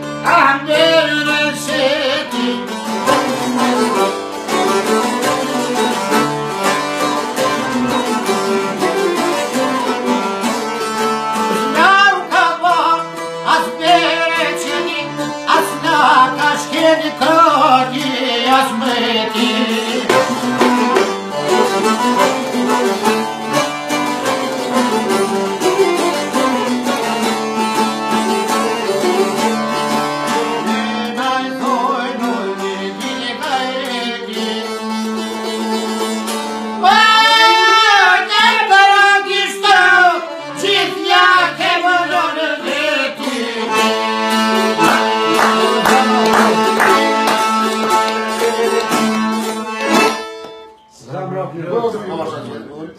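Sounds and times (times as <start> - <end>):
man singing: 0.0 - 3.3, 11.5 - 20.6, 30.3 - 35.2, 36.8 - 47.6, 48.2 - 49.2
plucked lute notes: 0.0 - 38.1, 39.8 - 51.2
accordion drone: 0.0 - 51.0.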